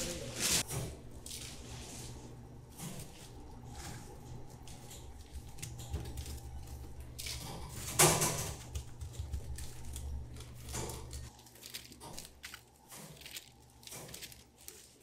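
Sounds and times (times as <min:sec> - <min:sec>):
dried shrimp crunching: 0:08.7 - 0:15.0.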